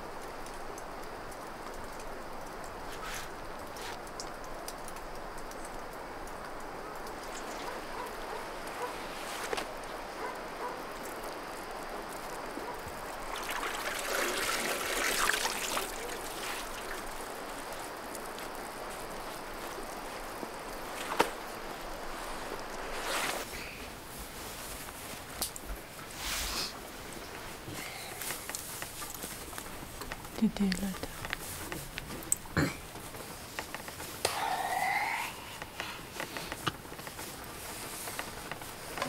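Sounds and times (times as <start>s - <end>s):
steady outdoor hiss: 0.0s - 39.0s
rustling: 2.8s - 4.1s, 7.2s - 10.8s, 12.5s - 34.9s.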